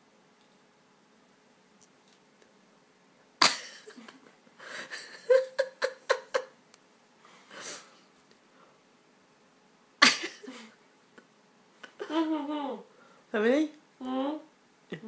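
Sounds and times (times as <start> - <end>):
woman's stifled laughter: 3.4 - 6.6, 10.0 - 10.8, 11.8 - 12.8.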